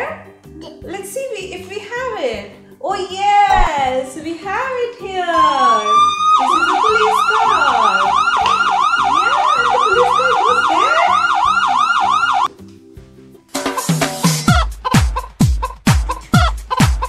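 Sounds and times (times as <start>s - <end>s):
police siren wailing and yelping: 5.5s - 12.5s.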